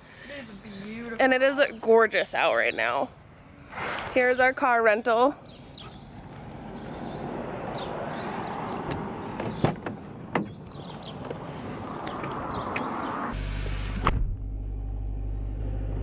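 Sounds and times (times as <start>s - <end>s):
car doors clunking shut: 8.7s - 11.4s.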